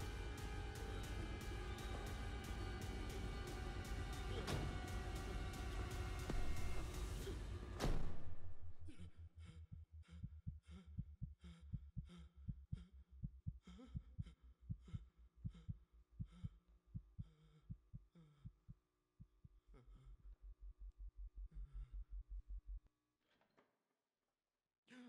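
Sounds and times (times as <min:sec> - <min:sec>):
heartbeat thumps: 0:00.0 - 0:09.1, 0:09.7 - 0:19.5.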